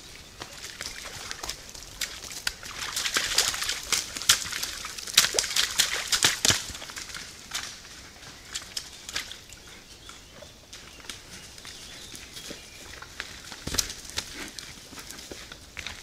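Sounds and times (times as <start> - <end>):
deer splashing through mud: 0.3 - 9.6.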